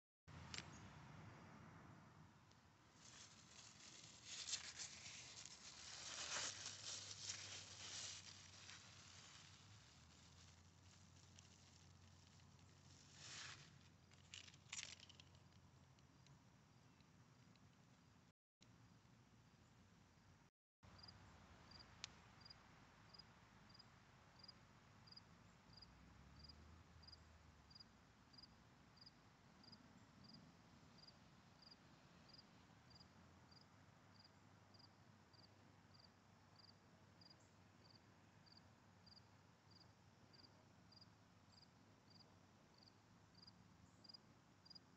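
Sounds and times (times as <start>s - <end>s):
cricket chirping: 18.8s - 44.9s.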